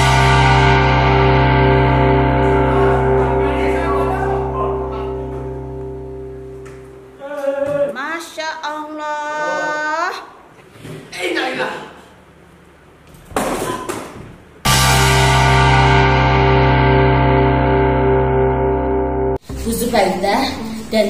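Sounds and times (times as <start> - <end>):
rock guitar chord ringing: 0.0 - 7.2, 14.7 - 20.8.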